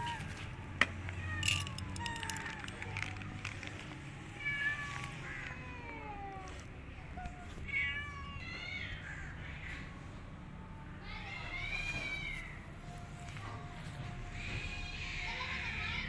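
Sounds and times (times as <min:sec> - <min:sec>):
cats meowing: 0:00.0 - 0:10.0, 0:11.0 - 0:16.0.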